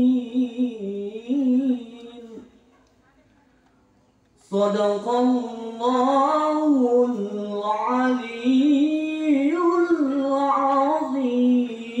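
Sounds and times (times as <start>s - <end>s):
man chanting melodically: 4.4s - 12.0s.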